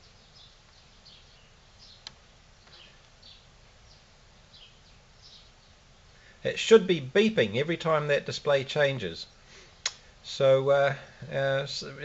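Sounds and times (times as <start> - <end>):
faint bird chirps: 0.0 - 6.5.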